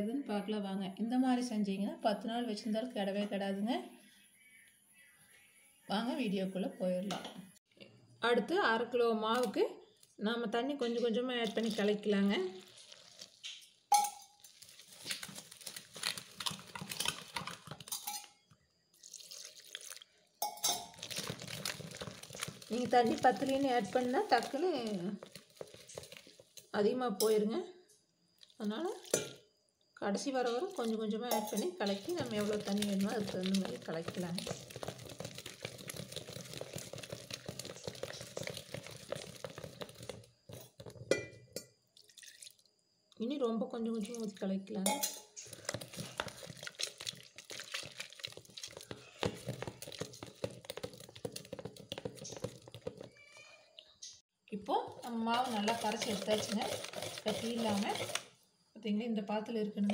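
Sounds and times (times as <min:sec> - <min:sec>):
wire whisk beating batter in bowl: 0:31.3 - 0:41.1, 0:45.4 - 0:53.3, 0:54.9 - 0:58.3.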